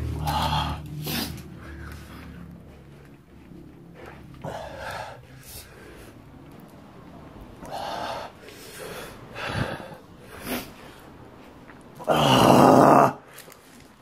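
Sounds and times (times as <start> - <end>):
man breathing hard: 0.0 - 3.1, 3.9 - 6.6, 7.5 - 11.4
man groaning: 12.0 - 13.2.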